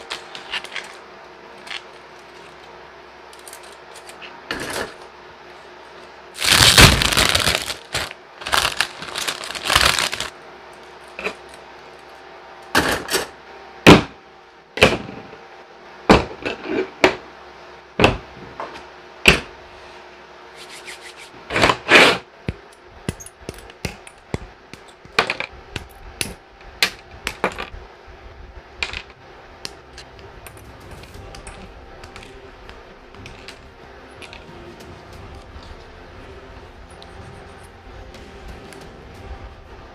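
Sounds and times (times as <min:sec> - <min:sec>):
plastic packaging crinkling: 0:06.4 - 0:10.4.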